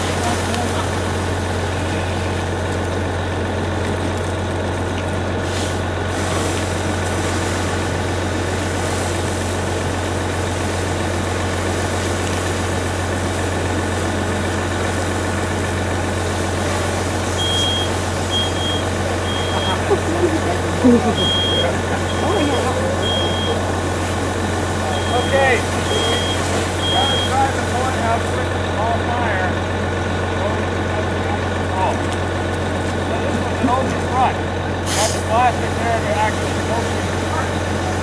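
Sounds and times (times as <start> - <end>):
diesel engine droning: 0.0 - 38.0
high beep: 17.4 - 19.8, 21.1 - 23.6, 24.9 - 27.5
hose streams hissing: 34.8 - 37.8.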